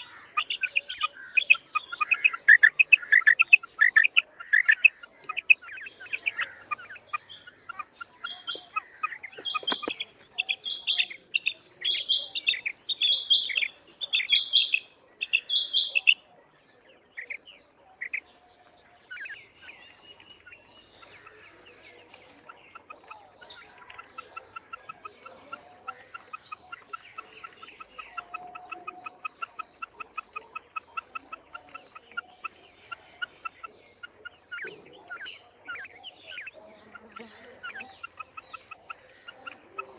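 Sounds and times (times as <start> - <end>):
quail calling sharply: 0.0 - 16.2.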